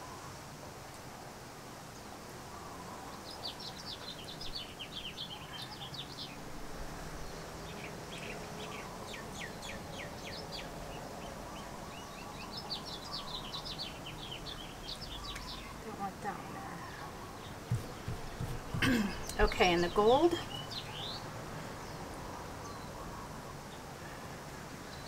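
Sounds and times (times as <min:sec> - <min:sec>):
bird chirping: 0:03.1 - 0:06.4, 0:07.2 - 0:23.8.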